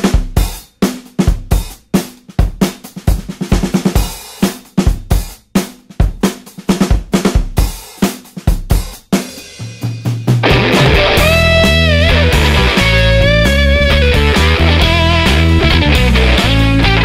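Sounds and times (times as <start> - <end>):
drum kit rock beat: 0.0 - 17.0
bass guitar: 10.4 - 17.0
electric guitar: 10.4 - 17.0.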